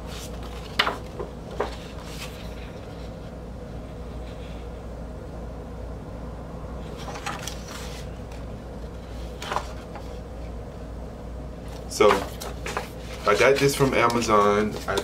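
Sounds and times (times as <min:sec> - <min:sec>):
paper rustling: 0:00.0 - 0:03.3, 0:06.8 - 0:10.2, 0:11.6 - 0:15.0
low background hum: 0:00.0 - 0:15.0.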